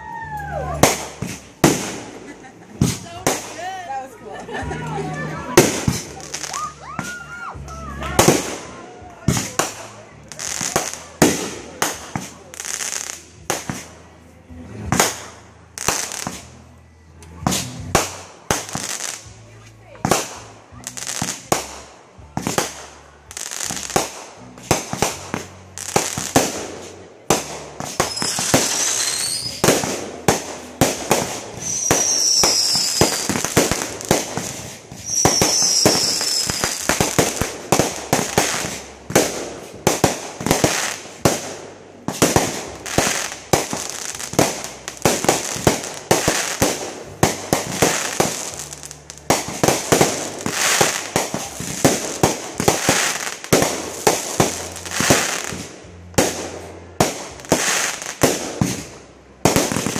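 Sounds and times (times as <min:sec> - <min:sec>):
fireworks bangs and crackling: 0:00.0 - 0:59.9
high falling firework whistles: 0:35.0 - 0:36.9.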